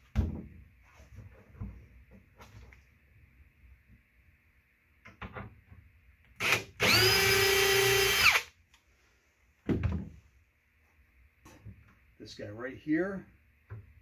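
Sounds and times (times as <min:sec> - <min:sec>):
cordless drill driving a screw: 0:06.4 - 0:08.5.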